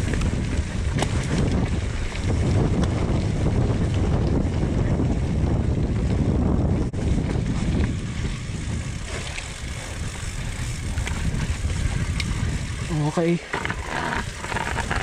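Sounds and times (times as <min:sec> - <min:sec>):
wind rushing over microphone: 0:00.0 - 0:15.0
tyres rolling over loose dirt: 0:07.0 - 0:15.0.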